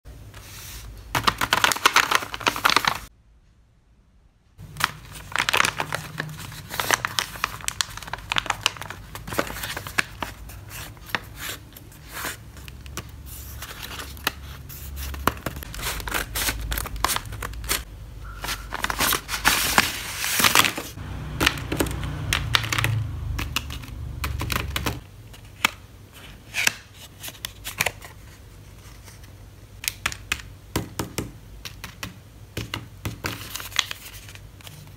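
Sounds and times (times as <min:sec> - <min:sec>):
paper rustling and crinkling: 0:00.4 - 0:03.1, 0:04.6 - 0:21.0, 0:33.2 - 0:34.9.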